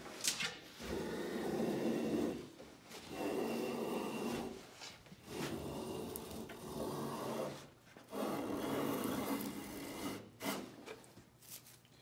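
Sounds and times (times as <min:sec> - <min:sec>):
hand plane shaving wood: 0:03.1 - 0:04.6, 0:05.2 - 0:11.0.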